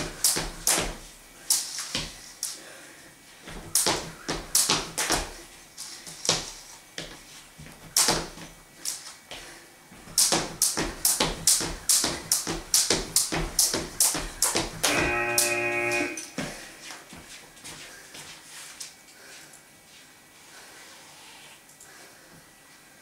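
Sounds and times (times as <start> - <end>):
skipping rope slapping floor: 0.0 - 2.6, 3.4 - 5.4, 6.1 - 9.4, 10.0 - 15.5
feet landing thuds: 3.4 - 15.4.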